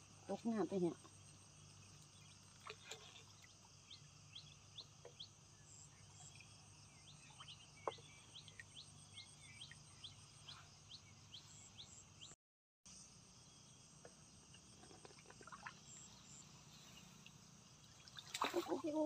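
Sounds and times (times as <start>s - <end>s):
insects buzzing: 12.9s - 19.0s.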